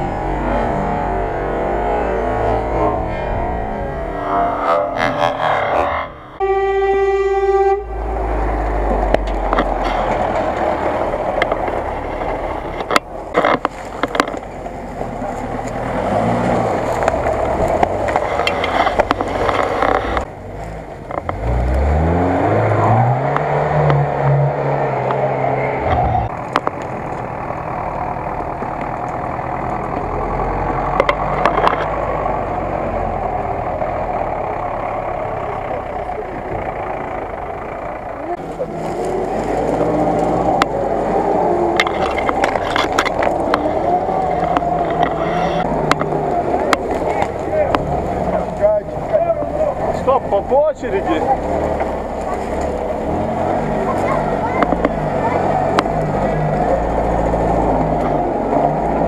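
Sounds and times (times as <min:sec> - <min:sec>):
engine revving hard: 0:00.0 - 0:06.5, 0:15.6 - 0:20.3, 0:21.3 - 0:26.3
off-road engines under load: 0:00.0 - 0:59.0.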